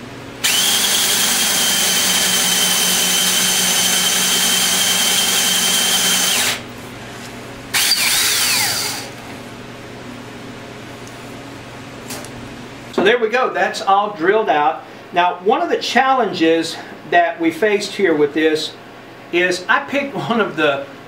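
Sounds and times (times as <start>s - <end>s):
power drill whining: 0.4s - 6.6s, 7.8s - 9.1s.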